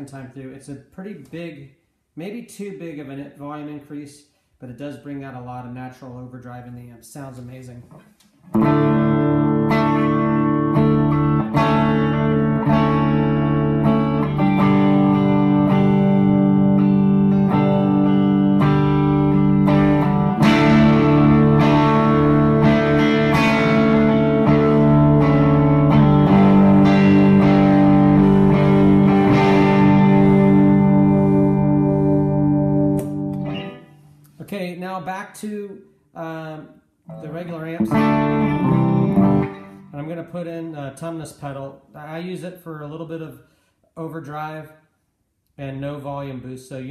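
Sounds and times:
overdriven electric guitar: 0:08.5 - 0:34.3, 0:37.1 - 0:40.1.

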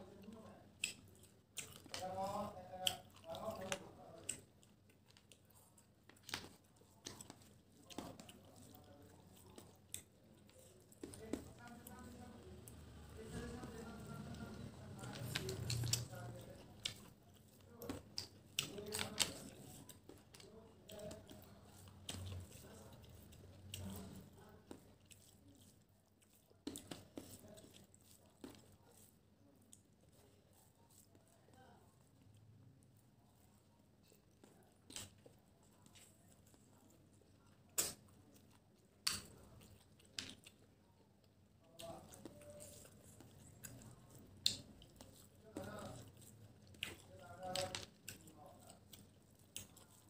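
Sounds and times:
fingers squishing food: 0:00.0 - 0:50.0
person chewing: 0:00.0 - 0:50.0.

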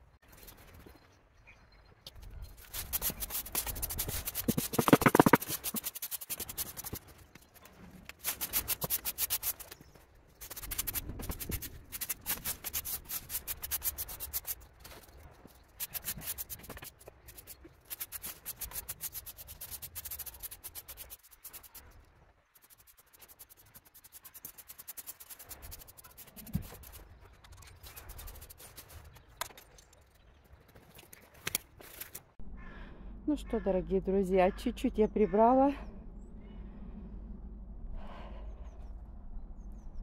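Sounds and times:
scraping on hard surface: 0:02.6 - 0:09.8.

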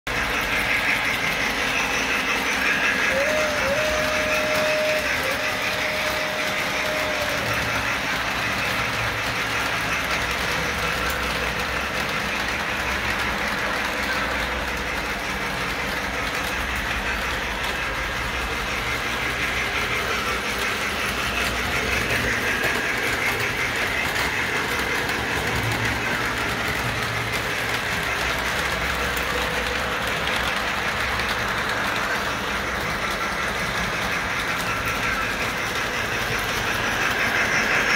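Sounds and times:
model train wheels clattering on rail: 0:00.1 - 0:37.9
whistle-like tone: 0:01.8 - 0:08.0.

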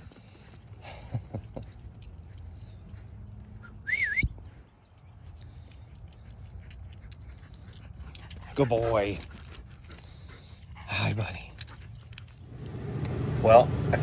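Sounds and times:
rising and dipping whistle: 0:03.7 - 0:04.5.

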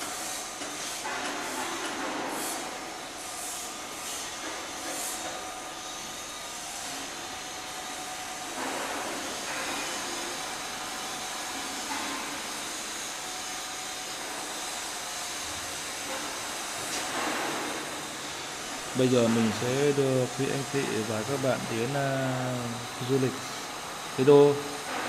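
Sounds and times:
steady hiss: 0:15.4 - 0:25.0.

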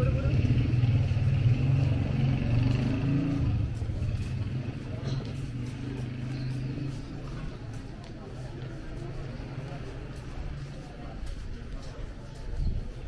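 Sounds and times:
low engine hum: 0:00.0 - 0:07.9
faint voices of passers-by: 0:00.0 - 0:13.0.

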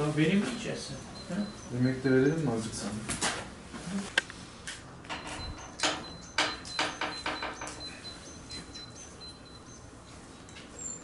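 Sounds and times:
irregular knocks and rattles: 0:05.1 - 0:07.9.

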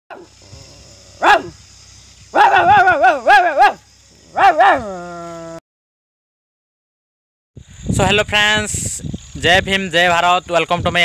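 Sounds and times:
person imitating dog howls: 0:02.4 - 0:05.6.

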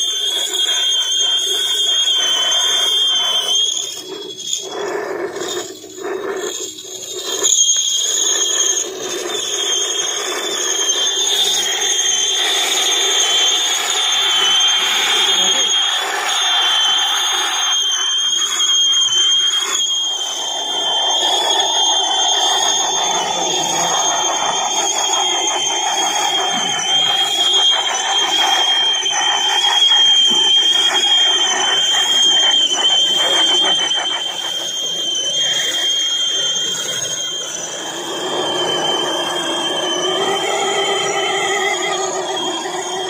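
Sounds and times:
steady high-pitched whine: 0:00.0 - 0:43.0
toy truck motors whirring: 0:00.0 - 0:43.0.

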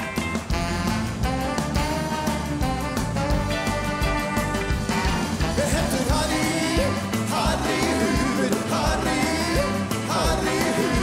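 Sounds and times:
rock band playing: 0:00.0 - 0:11.0
person singing: 0:05.4 - 0:11.0.

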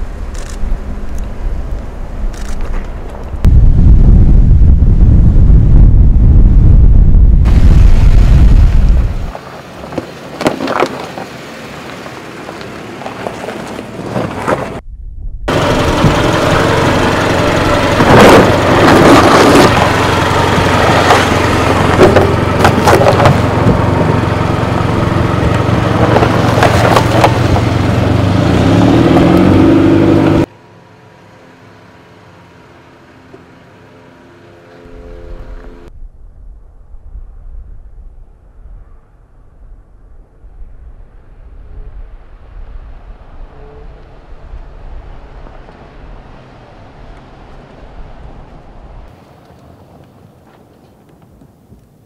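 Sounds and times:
off-road engines running: 0:00.0 - 0:03.5, 0:08.5 - 0:14.8, 0:15.5 - 0:35.9
tyres crunching on rock: 0:25.5 - 0:27.7.

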